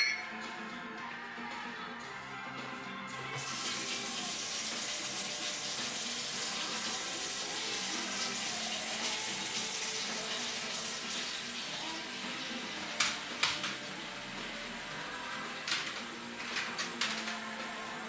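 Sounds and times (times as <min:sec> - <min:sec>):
music playing: 0:00.0 - 0:18.0
water running into sink: 0:03.3 - 0:18.0
tap turned on: 0:12.9 - 0:13.8.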